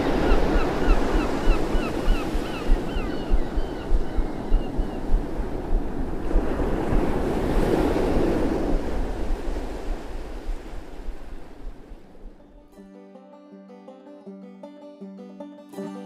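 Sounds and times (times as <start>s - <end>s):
surf washing onto beach: 0.0s - 12.4s
wind buffeting microphone: 0.0s - 12.5s.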